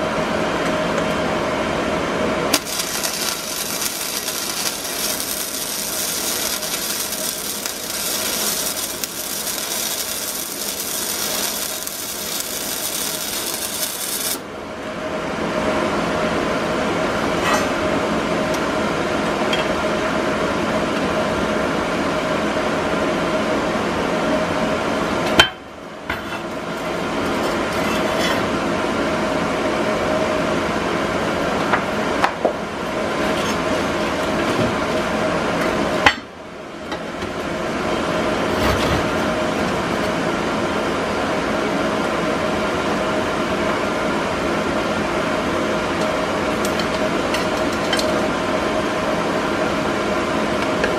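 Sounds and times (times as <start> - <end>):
steady shop hum: 0.0 - 50.9
arc welding crackling hiss: 2.5 - 14.4.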